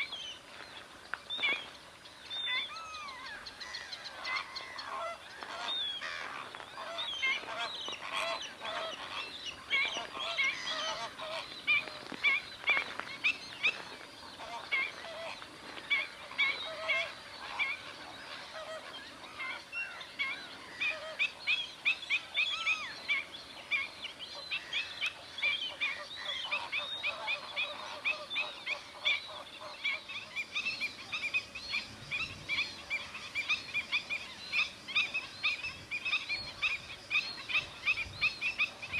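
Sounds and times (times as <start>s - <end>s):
flamingos honking: 2.6s - 12.7s, 13.3s - 21.4s, 24.5s - 31.3s.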